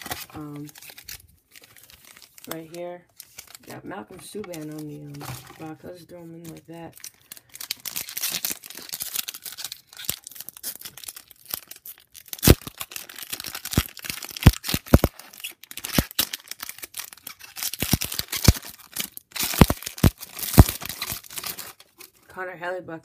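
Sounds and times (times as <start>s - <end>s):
foil wrapper crinkling and tearing: 0.0s - 22.3s.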